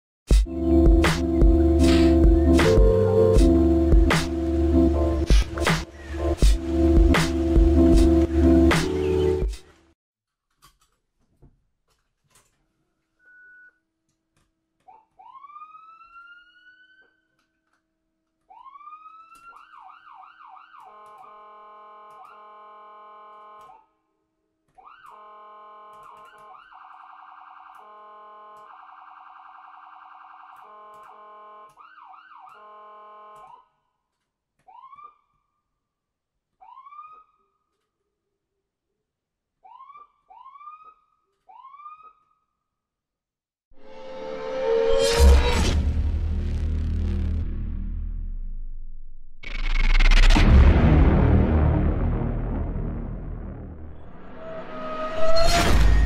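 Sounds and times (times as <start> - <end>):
ambulance siren: 14.9 - 17.4, 18.5 - 23.9, 24.8 - 33.8, 34.7 - 35.6, 36.6 - 37.6, 39.6 - 42.4.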